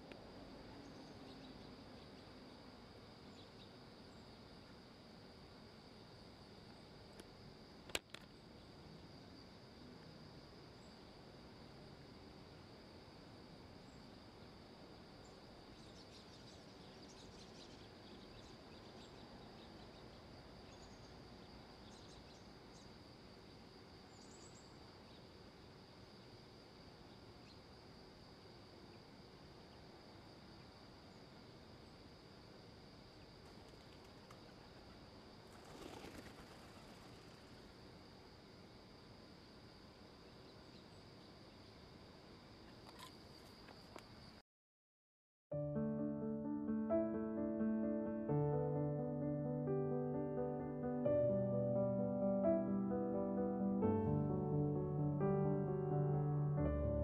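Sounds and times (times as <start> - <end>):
high insect drone: 0.0 - 44.4
faint bird chirps: 0.8 - 4.5, 15.2 - 25.4.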